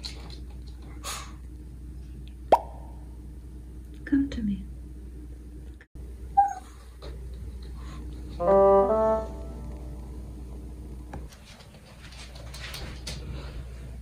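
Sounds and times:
comic brass horn notes: 0:08.4 - 0:09.9.

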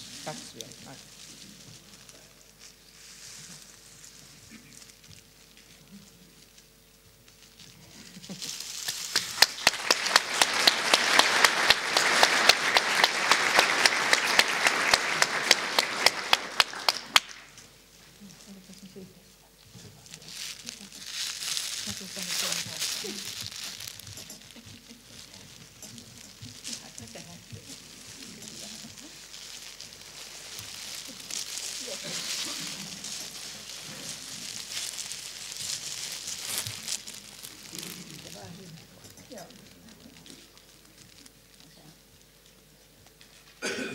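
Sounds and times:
audience applauding: 0:08.8 - 0:17.6
sharp individual claps: 0:08.9 - 0:17.5
faint voices: 0:18.2 - 0:42.1.

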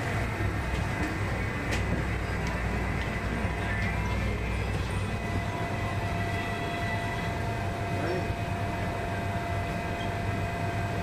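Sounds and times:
standing train hum: 0:00.0 - 0:11.0.

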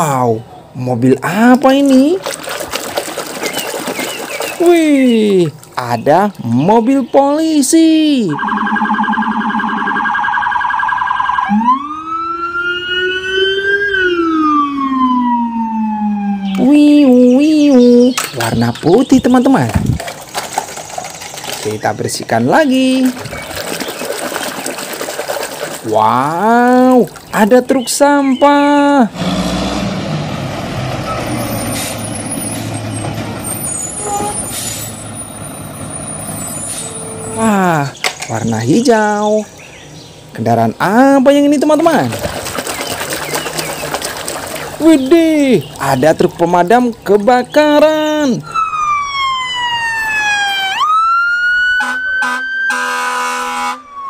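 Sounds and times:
police siren warble and wail: 0:08.2 - 0:17.1, 0:35.9 - 0:37.8, 0:48.4 - 0:54.0.

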